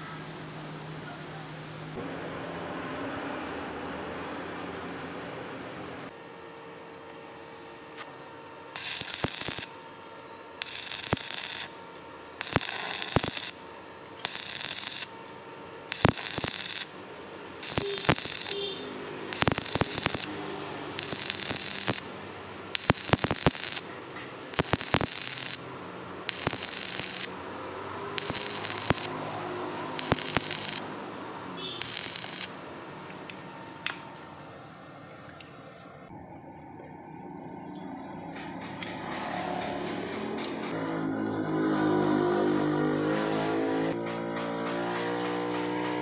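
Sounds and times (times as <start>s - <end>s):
welding arc crackling: 8.8s - 9.8s, 10.6s - 11.8s, 12.4s - 15.2s, 15.9s - 27.5s, 28.1s - 31.0s, 31.6s - 32.6s.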